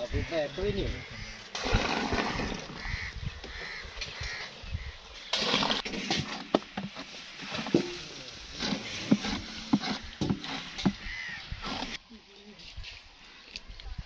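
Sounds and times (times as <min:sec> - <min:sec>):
wooden scraper scraping a tray: 0:08.5 - 0:12.0.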